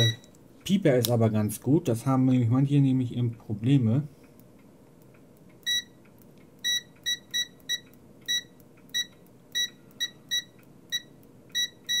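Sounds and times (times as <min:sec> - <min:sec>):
multimeter short high beeps: 0:00.0 - 0:00.4, 0:05.6 - 0:06.0, 0:06.6 - 0:12.0.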